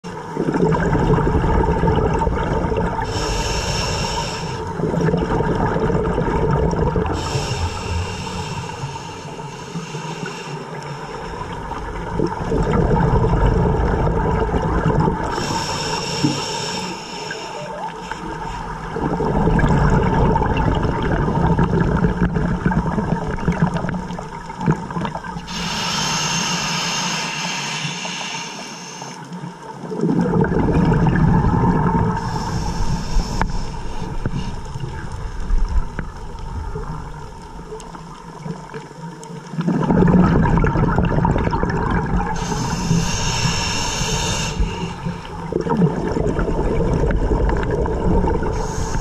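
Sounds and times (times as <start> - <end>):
gurgling exhaled bubbles: 0.1 - 27.0, 29.5 - 49.0
regulator hissing inhalations: 3.0 - 4.8, 7.2 - 11.5, 15.3 - 18.8, 25.4 - 29.4, 32.2 - 34.6, 42.3 - 45.5, 48.5 - 49.0.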